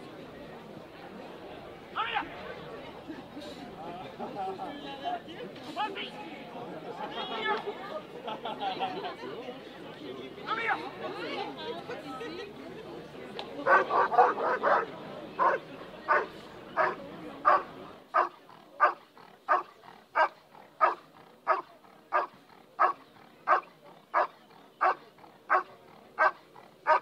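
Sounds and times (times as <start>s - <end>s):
dog barking: 18.2s - 27.0s.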